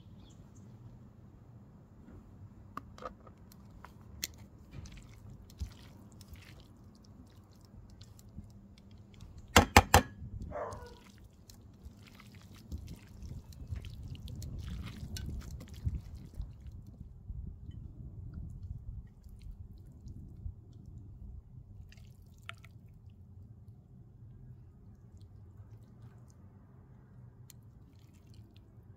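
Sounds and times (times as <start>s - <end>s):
pasta squelching in pan: 3.6s - 9.5s, 10.7s - 16.8s.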